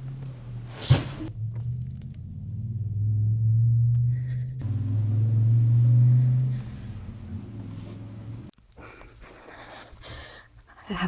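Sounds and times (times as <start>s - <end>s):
low droning horror score: 1.3s - 7.7s.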